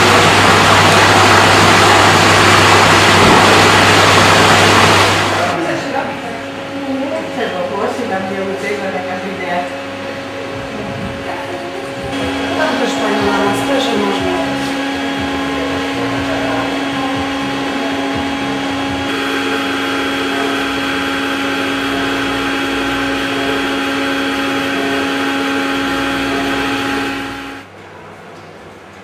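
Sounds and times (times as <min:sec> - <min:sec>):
motor whirring: 0:11.8 - 0:27.6.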